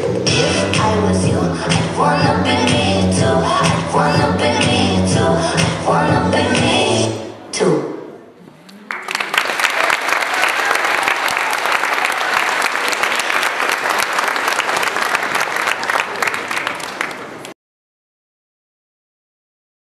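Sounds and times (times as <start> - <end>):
crowd clapping: 8.6 - 17.6.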